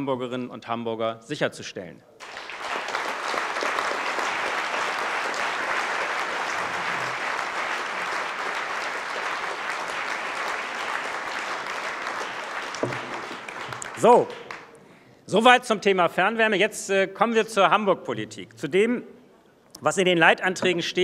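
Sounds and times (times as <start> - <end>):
audience applause: 2.2 - 14.8.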